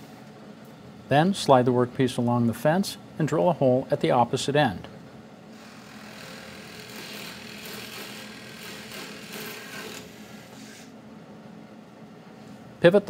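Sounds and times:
drill press motor humming: 5.5s - 11.0s
drill bit cutting wood: 5.6s - 10.5s.

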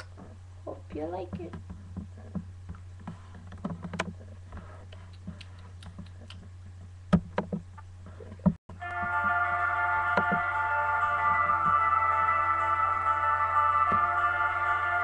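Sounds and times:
low electrical hum: 0.0s - 8.6s.

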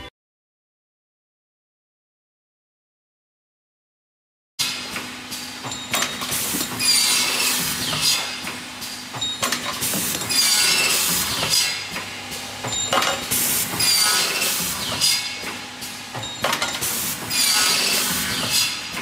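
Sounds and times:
steady machine hum: 4.7s - 19.0s
machine hissing: 6.1s - 19.0s.

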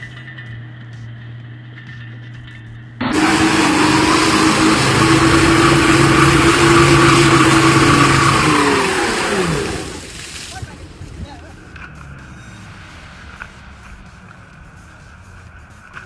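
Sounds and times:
engine revving hard: 3.0s - 10.2s
wheels spinning in mud: 3.0s - 16.0s.

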